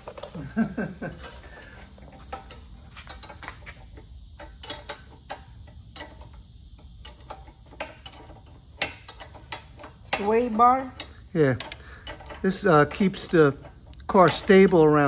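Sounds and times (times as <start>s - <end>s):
hand tools clicking on bolts: 0.0s - 15.0s.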